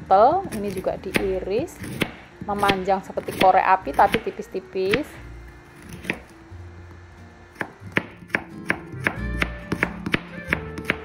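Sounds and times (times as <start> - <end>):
knife chopping on wooden board: 0.4 - 5.1, 5.8 - 6.3, 7.6 - 11.0.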